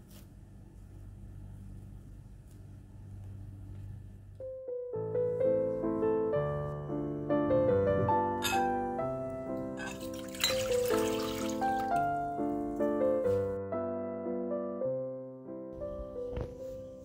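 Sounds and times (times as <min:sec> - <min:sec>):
gentle solo piano music: 0:04.4 - 0:17.0
liquid pouring and splashing into bowl: 0:09.8 - 0:12.1.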